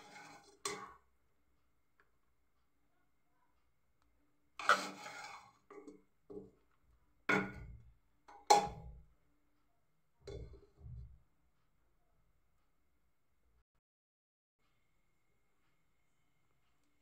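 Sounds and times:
spoon scraping a pot: 0:00.0 - 0:01.0, 0:04.6 - 0:06.5.

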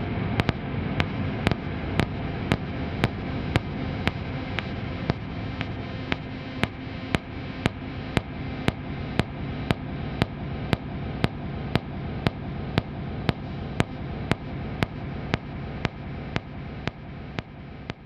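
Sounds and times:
sharp evenly spaced clicks: 0:00.4 - 0:18.0.

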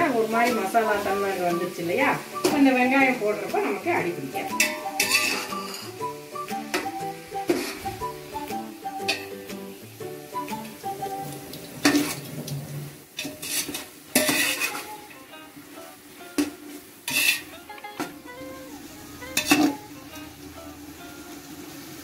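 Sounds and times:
masala sizzling in a pot: 0:00.0 - 0:22.0
ladle scraping and knocking pot: 0:04.6 - 0:06.0, 0:13.2 - 0:14.8, 0:17.1 - 0:17.5.

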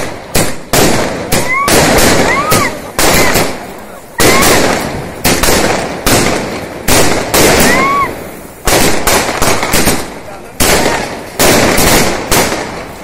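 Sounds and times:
firework bangs with crackle: 0:00.0 - 0:13.0
firework whistle: 0:01.3 - 0:05.0, 0:07.4 - 0:08.7.

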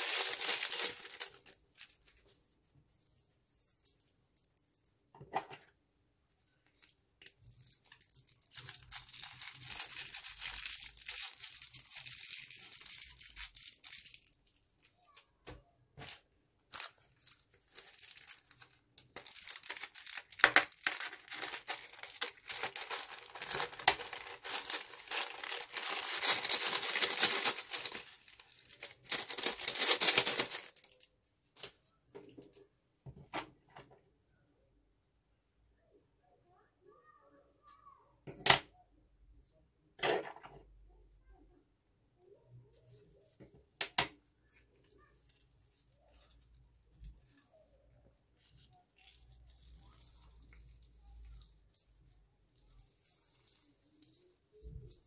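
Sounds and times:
foam beads crackling: 0:00.0 - 0:02.2, 0:07.2 - 0:15.2, 0:16.0 - 0:31.1
plastic bags crinkling: 0:00.0 - 0:02.2, 0:06.8 - 0:15.2, 0:16.0 - 0:31.1.

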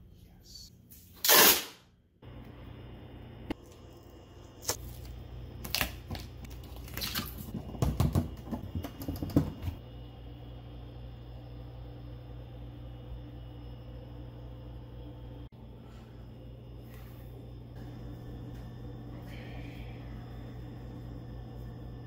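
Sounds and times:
tape ripping off roll: 0:01.2 - 0:01.8
tape crackling and clicks: 0:04.5 - 0:07.6.

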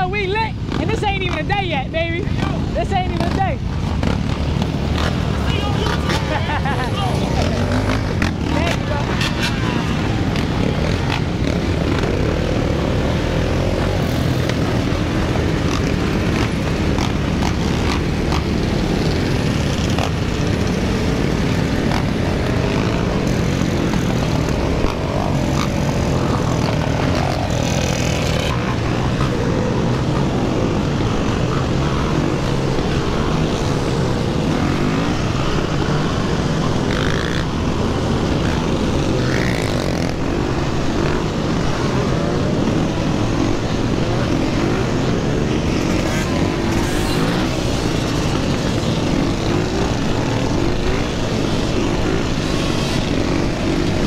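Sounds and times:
surrounding quad and bike engines: 0:00.0 - 0:54.0
dirt bike engine revving: 0:02.2 - 0:54.0.

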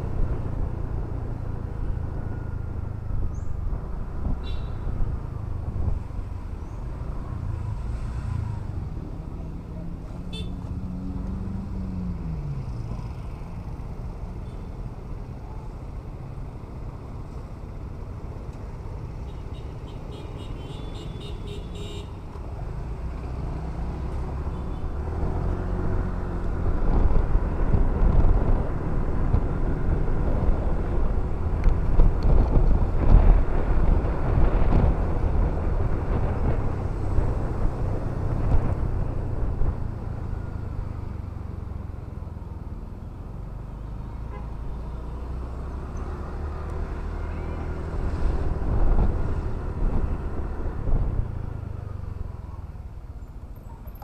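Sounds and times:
wind on microphone: 0:26.2 - 0:40.0.

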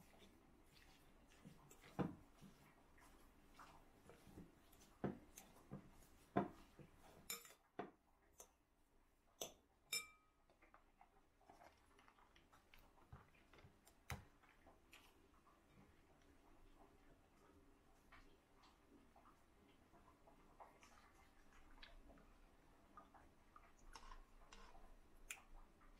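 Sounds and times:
fork mashing soft cheese: 0:00.0 - 0:16.3, 0:23.0 - 0:25.9
fork tapping glass bowl: 0:07.3 - 0:07.6, 0:09.4 - 0:10.3.

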